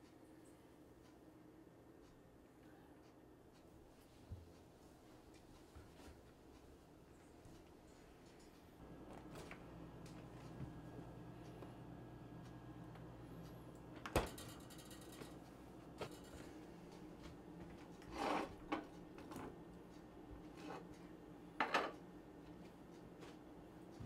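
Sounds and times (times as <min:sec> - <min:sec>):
refrigerator door shutting: 0:14.0 - 0:14.5
dishes clattering: 0:21.6 - 0:22.0.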